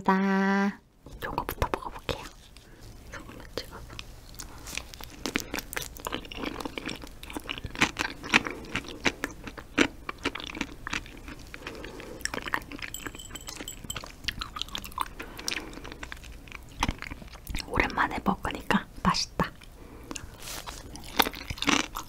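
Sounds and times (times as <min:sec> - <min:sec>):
close chewing: 0:01.6 - 0:17.8, 0:19.6 - 0:22.0.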